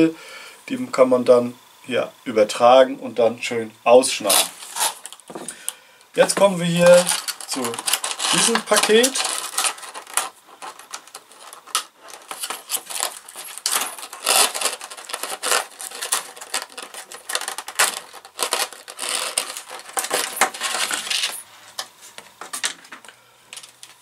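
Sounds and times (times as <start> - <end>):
metal parts clinking in plastic tray: 6.8 - 24.0.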